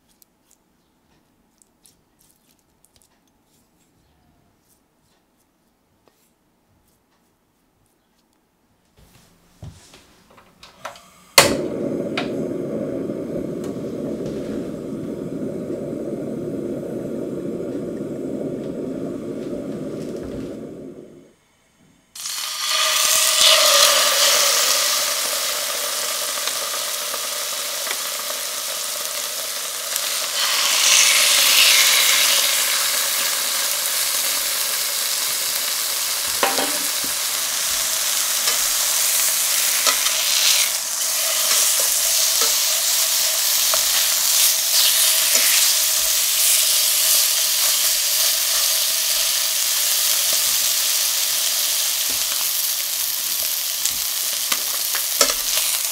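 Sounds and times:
chicken sizzling in a frying pan: 11.2s - 21.2s, 22.2s - 55.9s.

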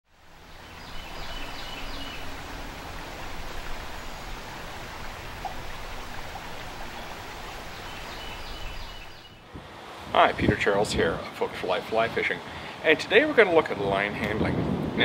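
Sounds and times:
stream rushing over rocks: 0.1s - 10.6s
bird chirping: 0.4s - 9.5s.

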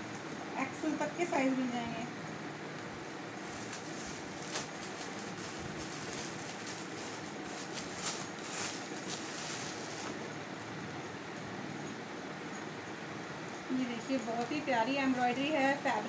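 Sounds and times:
plastic bag crinkling: 3.4s - 10.3s.

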